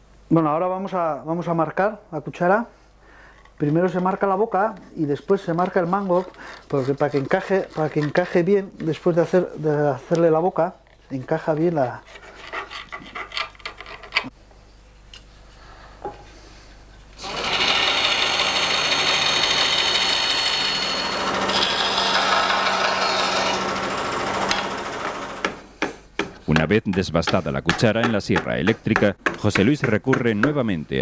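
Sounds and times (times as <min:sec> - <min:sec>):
faint scratching on wood: 0:05.4 - 0:09.7, 0:10.8 - 0:14.3
band saw cutting wood: 0:05.6 - 0:08.4, 0:17.2 - 0:25.6.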